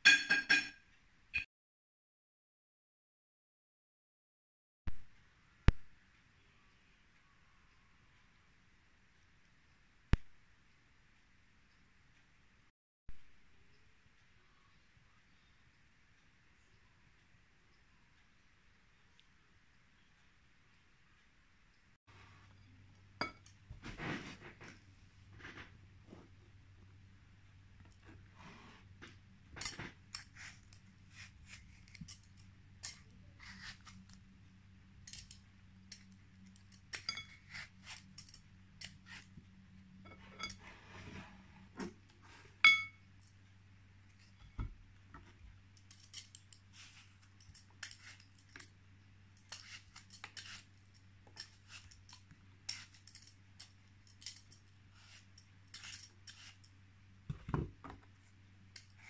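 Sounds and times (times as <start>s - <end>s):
low steady hum: 5.0s - 59.0s
peeler scraping apple skin: 30.1s - 34.2s, 49.4s - 50.8s, 51.4s - 53.2s, 54.2s - 56.7s.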